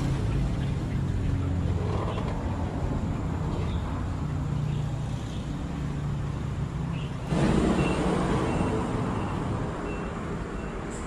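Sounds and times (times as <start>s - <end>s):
loud rushing noise: 7.2s - 9.8s.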